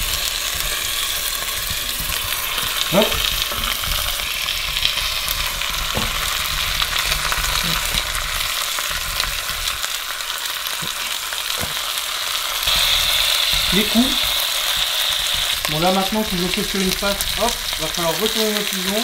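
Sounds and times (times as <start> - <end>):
meat sizzling in oil: 0.0 - 19.0
light knocks in pot: 5.9 - 6.4, 10.8 - 11.9.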